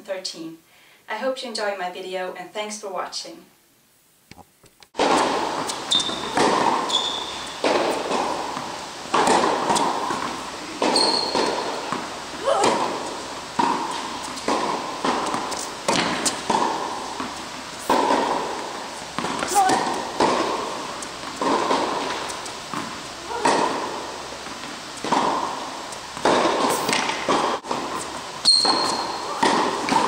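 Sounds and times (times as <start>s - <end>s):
tennis balls hit and bouncing: 4.3s - 30.0s
shoe squeaks on court: 5.6s - 7.6s, 10.9s - 11.8s, 28.0s - 29.4s.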